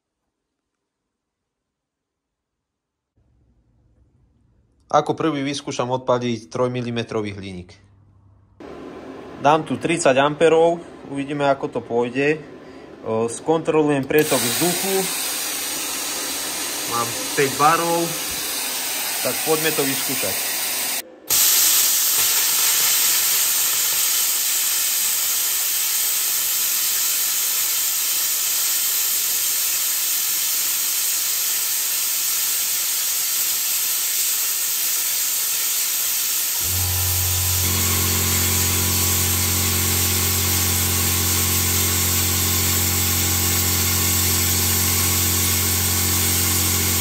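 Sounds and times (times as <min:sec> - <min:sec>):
plasma cutter hissing: 0:14.2 - 0:47.0.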